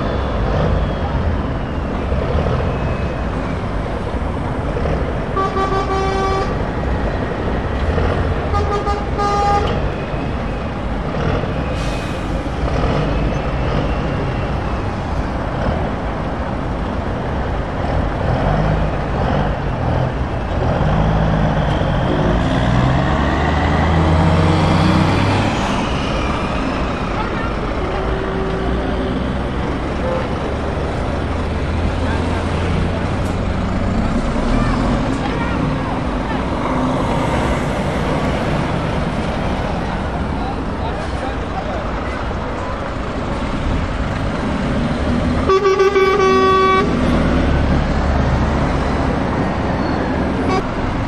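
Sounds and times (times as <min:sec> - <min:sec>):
truck diesel engines running: 0:00.0 - 0:51.0
air horn blasts: 0:05.4 - 0:06.6, 0:08.5 - 0:09.8, 0:45.4 - 0:47.0, 0:50.4 - 0:50.7.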